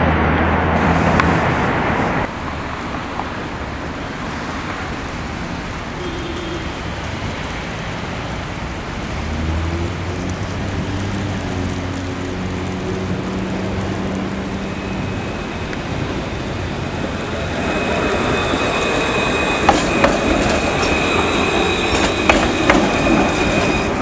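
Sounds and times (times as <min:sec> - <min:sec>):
street traffic noise: 0:00.0 - 0:24.0
tram electric hum: 0:00.0 - 0:24.0.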